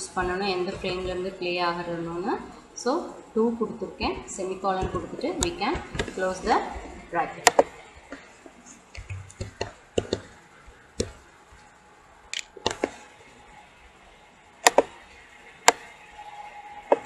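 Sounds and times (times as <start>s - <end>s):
computer mouse clicks: 12.3s - 13.0s, 14.6s - 14.9s.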